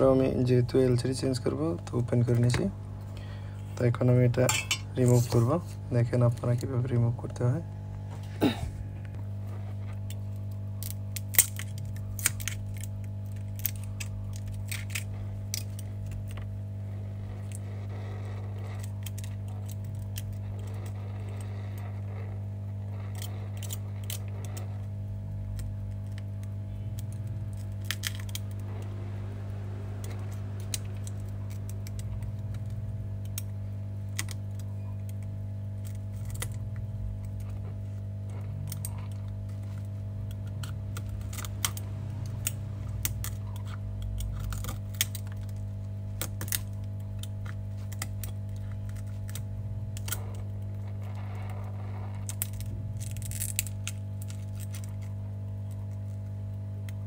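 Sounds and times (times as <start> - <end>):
metal blade scraping glass: 4.5 - 5.4.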